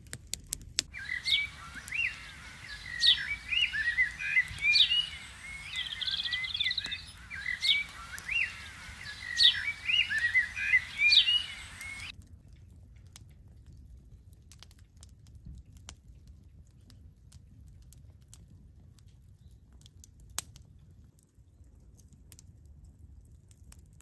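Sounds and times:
wood fire crackling: 0.0s - 24.0s
small birds chirping: 0.9s - 12.1s.

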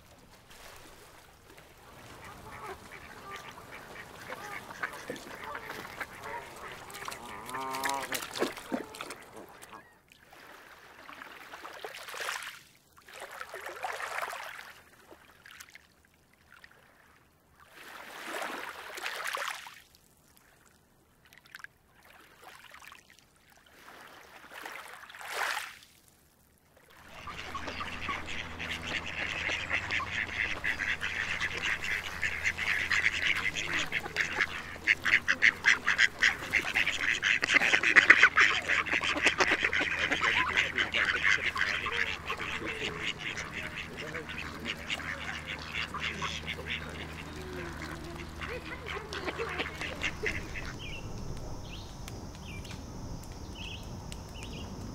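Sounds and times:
ducks quacking: 1.9s - 9.9s, 27.0s - 51.1s.

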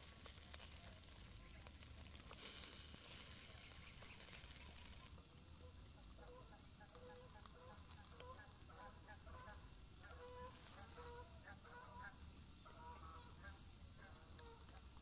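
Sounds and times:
fowl calling: 5.6s - 14.8s.

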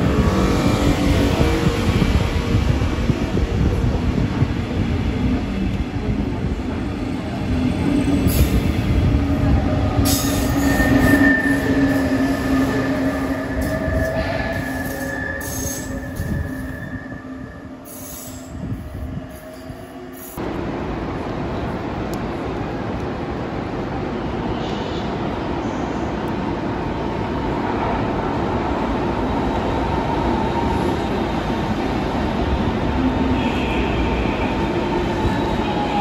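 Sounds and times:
train wheels rumbling on rails: 0.0s - 36.0s
high wheel squeal: 10.1s - 18.5s.

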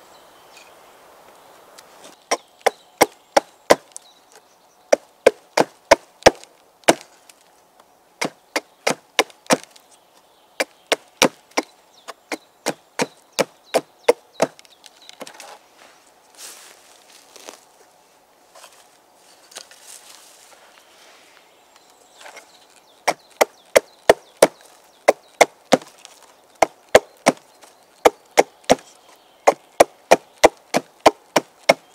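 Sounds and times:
axe chopping wood: 2.3s - 3.9s, 4.9s - 7.1s, 8.2s - 9.7s, 10.6s - 11.7s, 12.3s - 14.6s, 23.1s - 25.9s, 26.6s - 27.4s, 29.5s - 31.9s.

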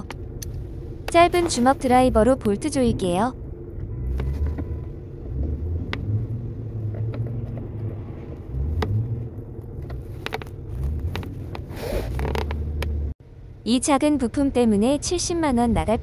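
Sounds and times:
steady low rumble: 0.0s - 4.0s.

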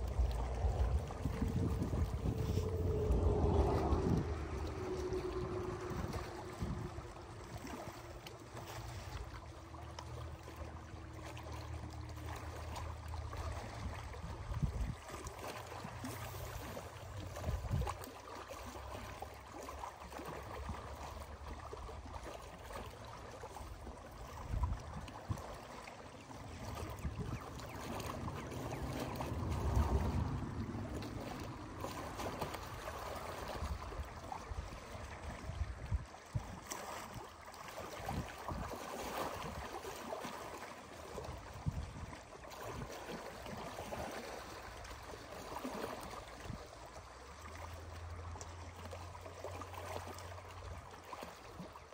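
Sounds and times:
wind buffeting microphone: 0.0s - 8.4s, 13.6s - 15.2s, 16.0s - 18.0s, 26.6s - 37.2s, 41.2s - 42.9s
waves lapping against rocks: 0.0s - 51.9s.

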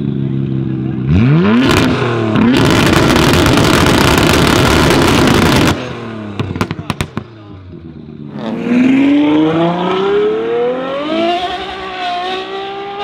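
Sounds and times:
car engine revving: 0.5s - 13.0s
exhaust crackling: 0.7s - 10.0s.

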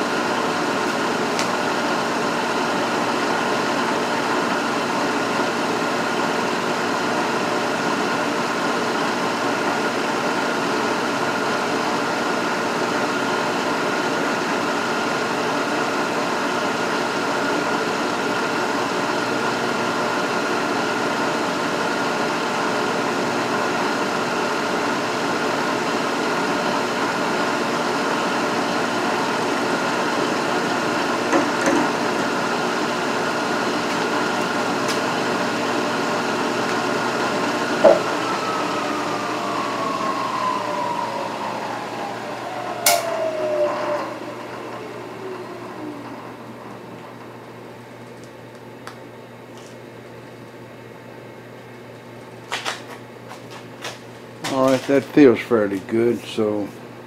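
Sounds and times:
milling machine running: 0.0s - 47.9s
brief knocks: 37.8s - 38.1s.

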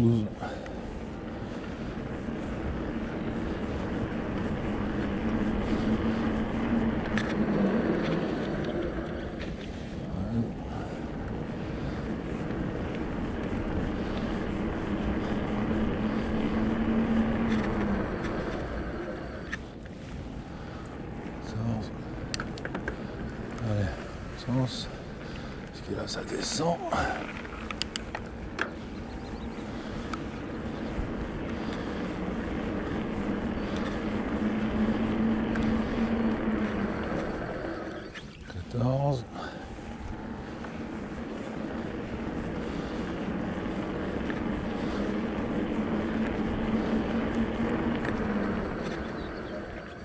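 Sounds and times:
steady motor hum: 0.0s - 50.0s
tyres rumbling: 0.0s - 50.0s
wind: 0.0s - 50.0s
wind on microphone: 27.0s - 50.0s.

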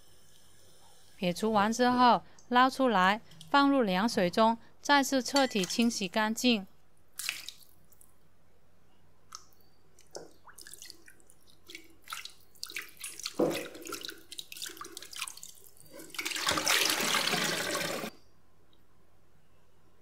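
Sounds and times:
water splashing: 7.2s - 7.7s, 10.2s - 18.1s
water pouring into sink: 11.7s - 18.1s.

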